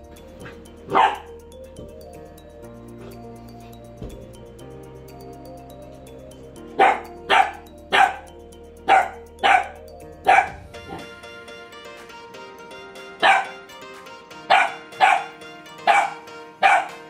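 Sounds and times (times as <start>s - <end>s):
background music: 0.0s - 17.0s
puppy barking: 0.9s - 1.3s, 6.8s - 8.3s, 8.9s - 11.0s, 13.2s - 13.7s, 14.4s - 17.0s.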